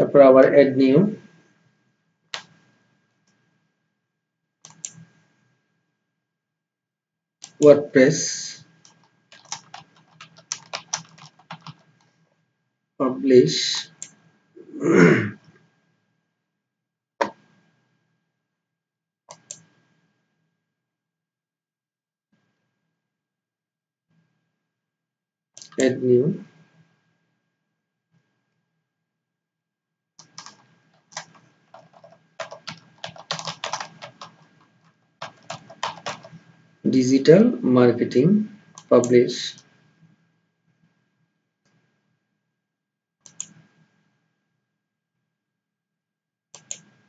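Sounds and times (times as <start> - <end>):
computer mouse clicks: 2.4 - 2.6, 4.6 - 5.0, 8.8 - 11.9, 19.3 - 19.7, 25.6 - 25.8, 30.2 - 36.4, 43.2 - 43.6, 46.6 - 47.0.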